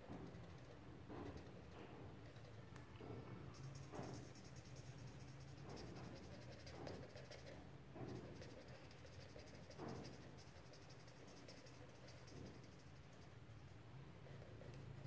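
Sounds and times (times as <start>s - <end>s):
steady low hum: 0.0s - 15.0s
marker scratching on paper: 3.6s - 13.3s.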